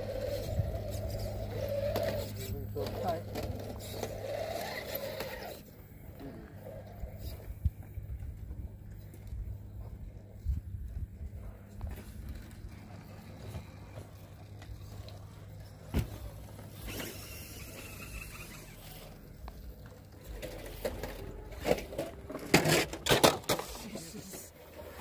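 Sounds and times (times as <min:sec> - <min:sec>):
toy car scraping on rock: 0:00.0 - 0:05.7, 0:16.7 - 0:19.3, 0:20.2 - 0:25.0.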